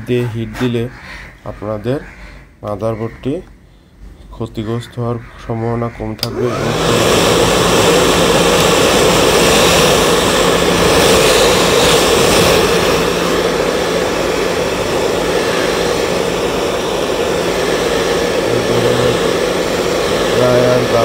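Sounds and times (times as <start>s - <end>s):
blow dryer running: 6.2s - 21.0s.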